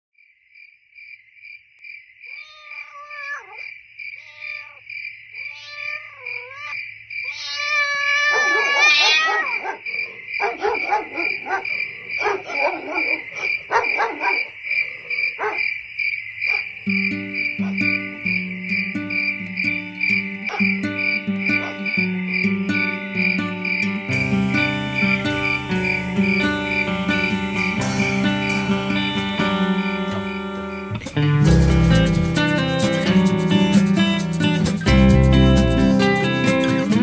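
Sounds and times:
crickets chirping: 0.2s - 37.0s
cat meowing: 2.3s - 3.6s, 4.2s - 4.8s, 5.4s - 9.6s
cat yowling: 2.3s - 4.8s, 5.4s - 9.8s, 10.4s - 15.6s, 20.5s - 20.8s, 21.5s - 22.0s
plucked-string music: 16.9s - 37.0s.

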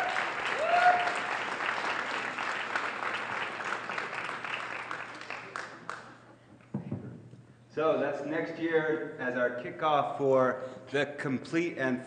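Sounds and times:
voices cheering: 0.0s - 1.4s
audience applauding: 0.0s - 6.2s.

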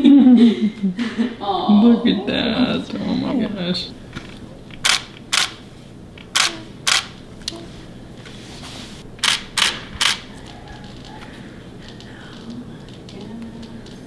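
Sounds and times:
camera shutter clicks: 4.8s - 5.6s, 6.3s - 7.2s, 9.2s - 10.3s.

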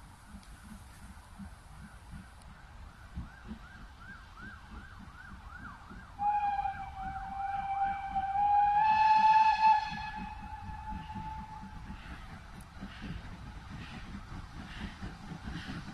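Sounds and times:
locomotive whistle: 3.4s - 12.1s.

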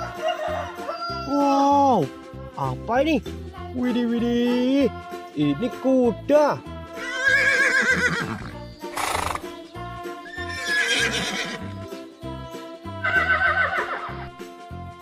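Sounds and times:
horses neighing: 7.0s - 9.5s, 10.2s - 11.8s, 13.0s - 14.3s.

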